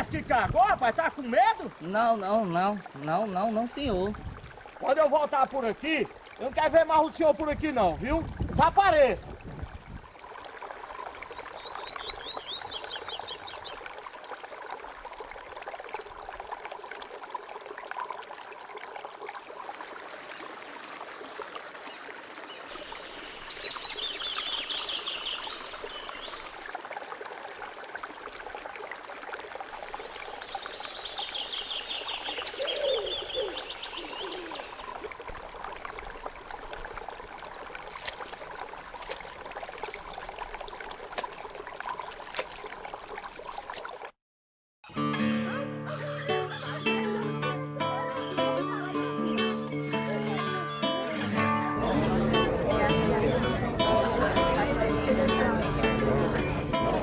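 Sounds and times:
water splashing: 0.0 - 44.2
water trickling: 0.0 - 44.2
bird singing trills: 11.3 - 13.8, 22.8 - 26.5, 30.2 - 35.0.

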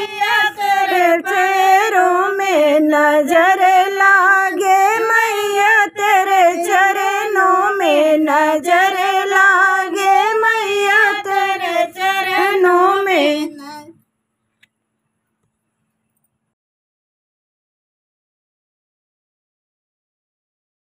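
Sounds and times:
woman singing folk song: 0.0 - 13.9.

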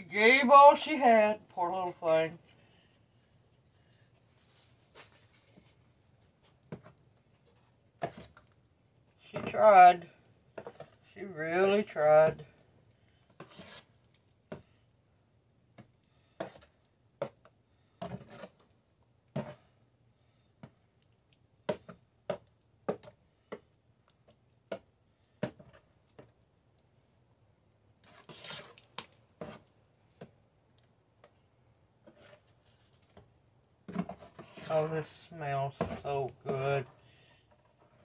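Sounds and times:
squelching mash scraping: 13.2 - 14.4, 18.0 - 18.7, 28.0 - 30.2, 32.0 - 38.0.

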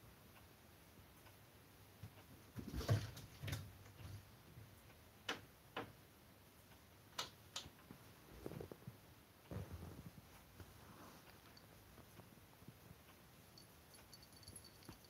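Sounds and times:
soft rustling: 7.9 - 15.0.

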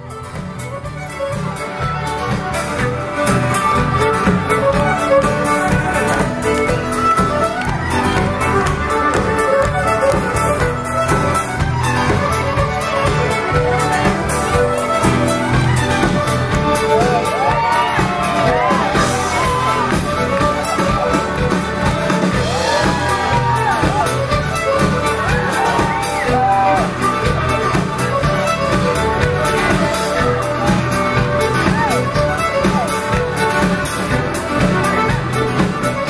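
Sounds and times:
fiddle band playing: 0.0 - 36.0
crowd whooping and shouting: 11.4 - 27.8, 29.2 - 33.2.

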